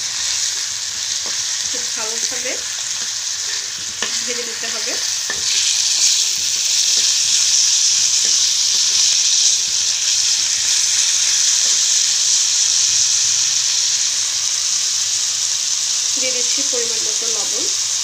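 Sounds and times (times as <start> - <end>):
food sizzling in hot oil: 0.0 - 18.0
spatula scraping a pan: 1.2 - 6.3.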